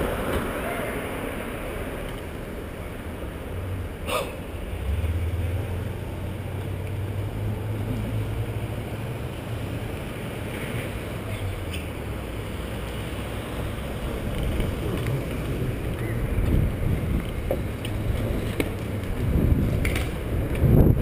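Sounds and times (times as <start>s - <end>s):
passing street traffic: 0.0s - 21.0s
wind buffeting microphone: 13.8s - 21.0s.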